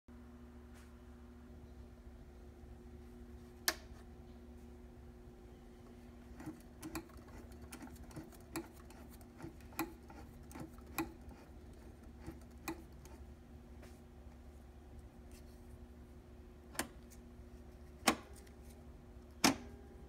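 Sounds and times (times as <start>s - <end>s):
faint steady hum: 0.1s - 20.0s
sewing machine ticking: 6.3s - 13.2s.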